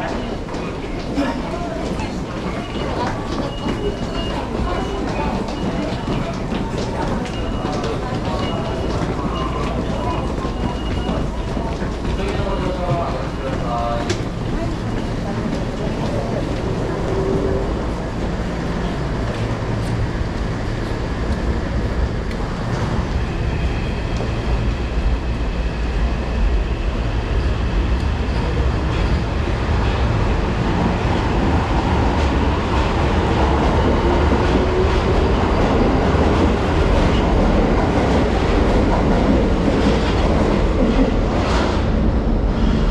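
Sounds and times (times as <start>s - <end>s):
subway train rumble: 0.0s - 42.9s.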